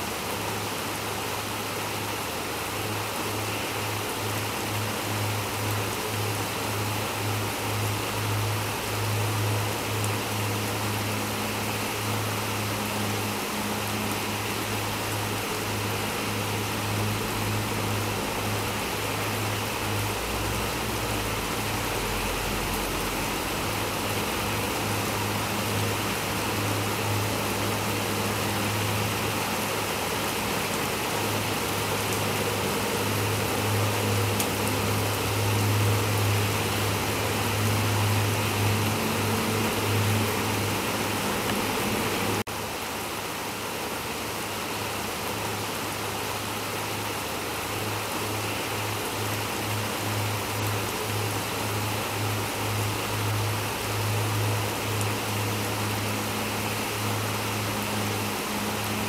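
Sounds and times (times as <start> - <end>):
steady rain hiss: 0.0 - 59.0.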